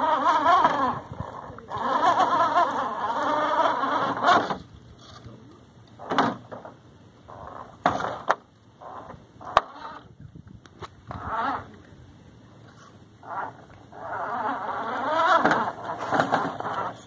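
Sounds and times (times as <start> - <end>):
small electric motor whining: 0.0 - 4.7, 13.2 - 17.0.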